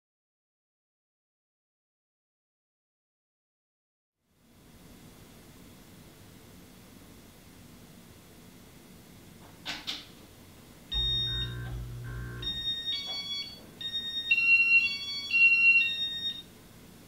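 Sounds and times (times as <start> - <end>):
low hum with electronic tones: 10.9 - 14.0
high electronic beeps: 10.9 - 14.1.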